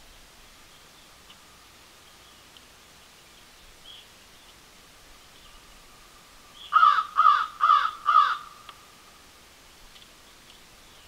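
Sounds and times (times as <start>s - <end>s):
crow calling: 6.6s - 8.9s.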